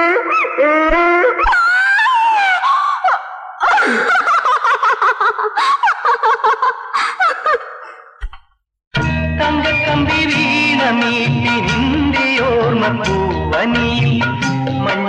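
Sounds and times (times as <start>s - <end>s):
woman giggling: 3.6s - 8.4s.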